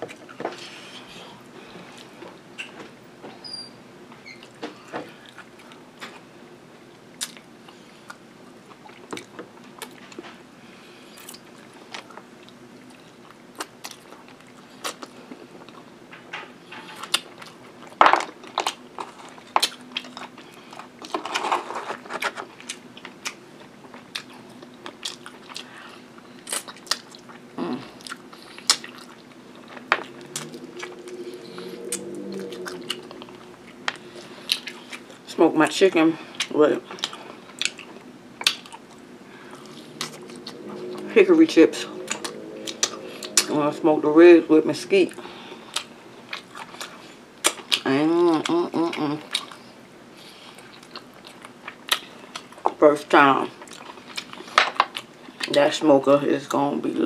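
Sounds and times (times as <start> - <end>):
chewing and biting ribs: 7.2 - 16.0, 16.9 - 35.3, 36.3 - 41.1, 42.0 - 43.5, 45.1 - 52.8, 53.5 - 55.6.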